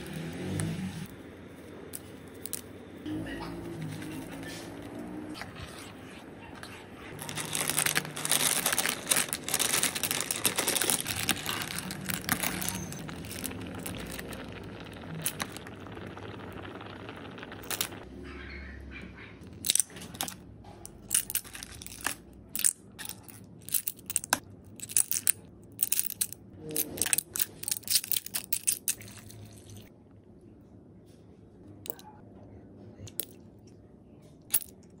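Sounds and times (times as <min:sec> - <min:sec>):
spoon stirring soup: 0:10.5 - 0:18.0.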